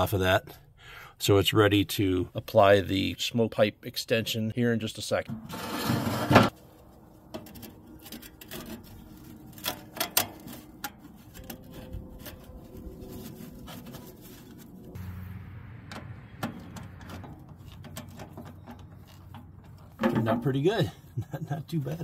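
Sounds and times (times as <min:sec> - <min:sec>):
low steady hum: 0:06.6 - 0:20.3.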